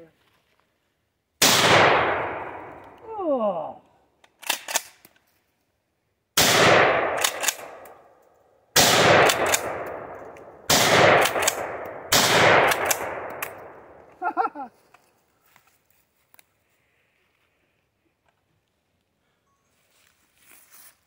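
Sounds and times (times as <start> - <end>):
shotgun blasts echoing: 1.4 - 2.9, 6.4 - 8.0, 8.8 - 14.0
shotgun action clacking: 4.3 - 5.0, 6.7 - 8.0, 8.8 - 13.7.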